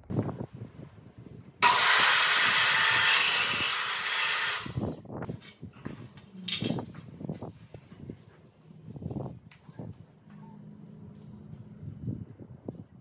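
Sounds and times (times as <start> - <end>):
miter saw cutting wood: 1.6 - 4.8.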